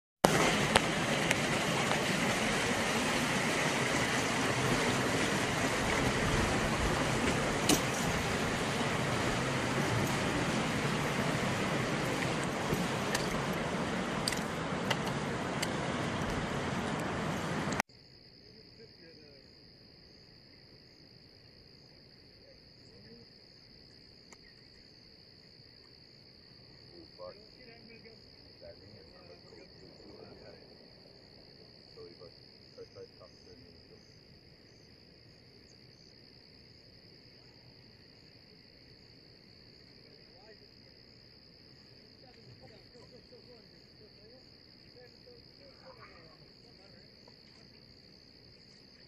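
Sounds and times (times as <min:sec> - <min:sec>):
flowing river water: 0:00.2 - 0:17.8
high-pitched insect chorus: 0:17.9 - 0:49.0.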